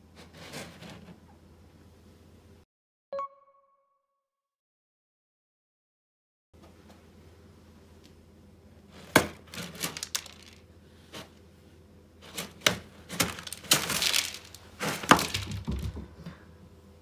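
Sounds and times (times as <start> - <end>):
cat digging in litter: 8.9 - 11.4, 12.2 - 15.4
litter pellets clattering: 9.5 - 10.6, 12.2 - 15.7.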